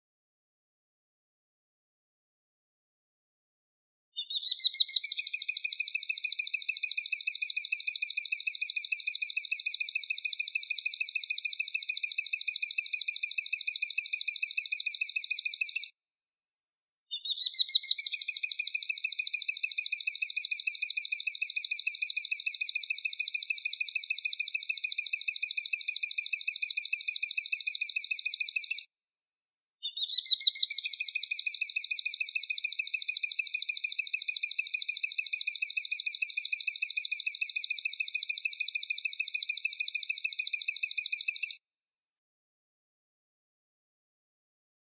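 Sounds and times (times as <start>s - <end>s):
bird chirping in fast runs: 4.2s - 15.9s, 17.1s - 28.9s, 29.8s - 41.6s.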